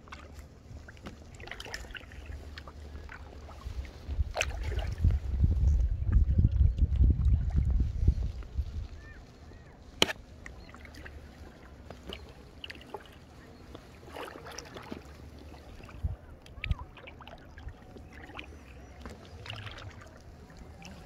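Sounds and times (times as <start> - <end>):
water splashing and dripping: 0.0 - 5.2, 10.0 - 21.0
steady low rumble: 2.5 - 9.7.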